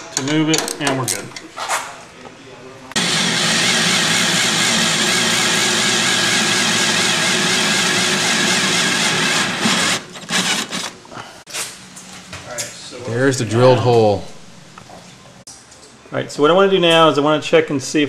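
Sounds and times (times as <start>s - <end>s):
power drill drilling through metal: 3.0s - 10.9s.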